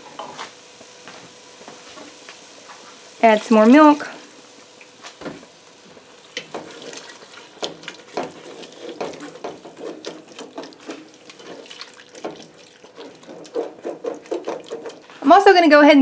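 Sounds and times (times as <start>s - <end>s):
wooden spoon scraping a pot: 6.4s - 15.4s.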